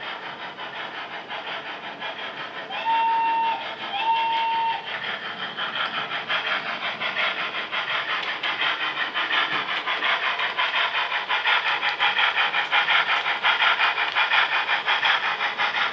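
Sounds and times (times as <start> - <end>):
rhythmic steam chuffs: 0.0 - 15.9
steam whistle blast: 2.7 - 4.9.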